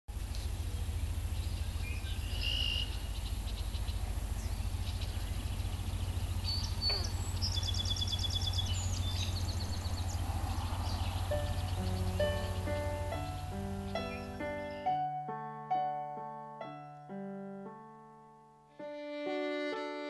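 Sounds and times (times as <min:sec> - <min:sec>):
birds chirping: 0:00.1 - 0:17.2
low rumble: 0:00.2 - 0:14.7
bird trilling: 0:01.5 - 0:15.0.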